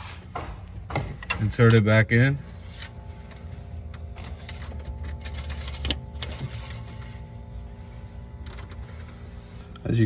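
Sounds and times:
low steady background hum: 0:00.0 - 0:10.0.

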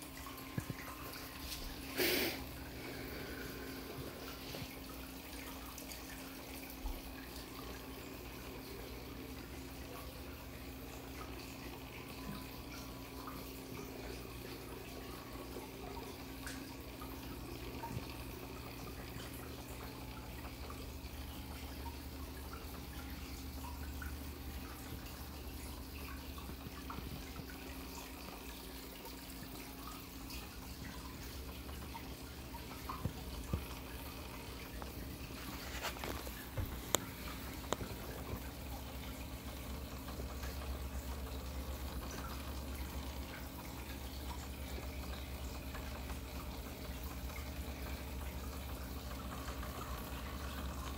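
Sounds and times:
aquarium water trickling and dripping: 0:00.0 - 0:50.9.

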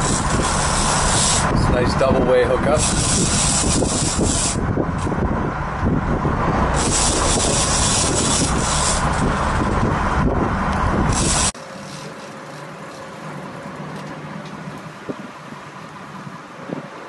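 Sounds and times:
wind rushing: 0:00.0 - 0:11.6
boat engine hum: 0:00.0 - 0:17.0.

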